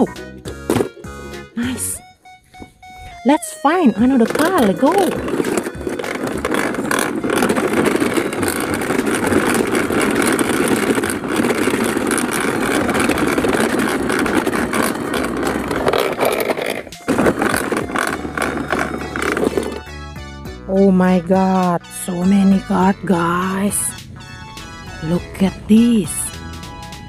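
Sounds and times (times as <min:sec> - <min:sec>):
plastic toy truck rumbling on grass: 0:03.7 - 0:20.2.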